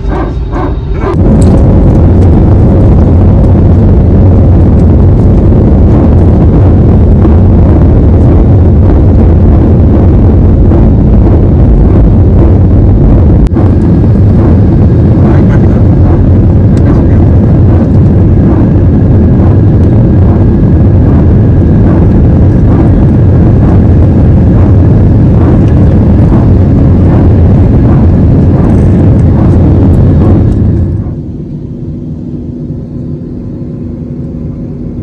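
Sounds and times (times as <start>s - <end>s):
airliner cabin noise: 0.0s - 35.0s.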